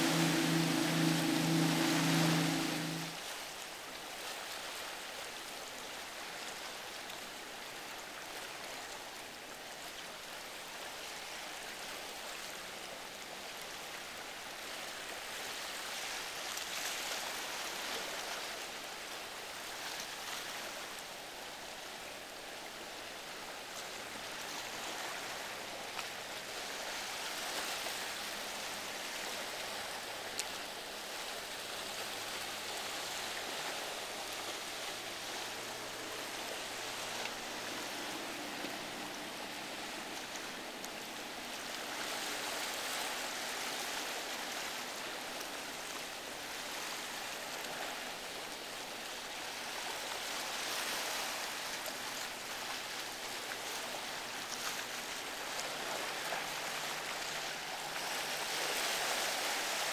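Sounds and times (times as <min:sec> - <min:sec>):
faint boat engine hum: 0:00.0 - 0:03.2, 0:20.6 - 0:59.9
waves and rushing water: 0:00.0 - 0:03.2, 0:05.4 - 0:59.9.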